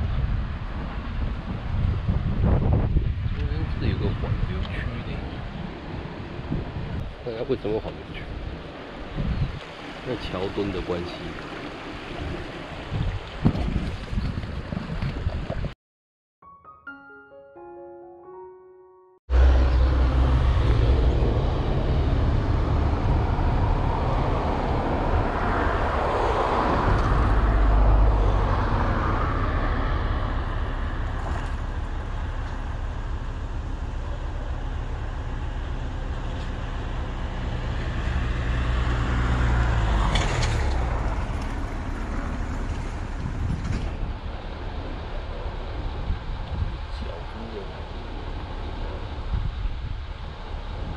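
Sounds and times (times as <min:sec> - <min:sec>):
road traffic rumble: 0:00.0 - 0:14.2, 0:19.3 - 0:50.9
vehicle engine passing by: 0:19.3 - 0:49.2.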